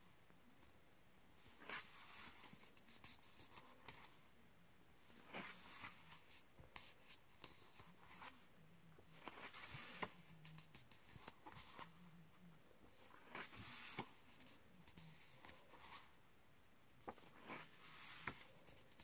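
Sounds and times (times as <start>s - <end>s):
paper pages rustling and flicking: 9.2s - 10.3s, 13.0s - 14.4s, 17.0s - 19.0s.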